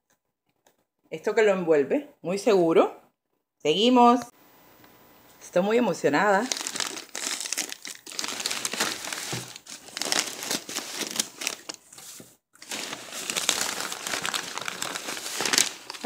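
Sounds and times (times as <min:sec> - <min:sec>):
plastic and paper wrapping crinkling: 0:05.6 - 0:16.0.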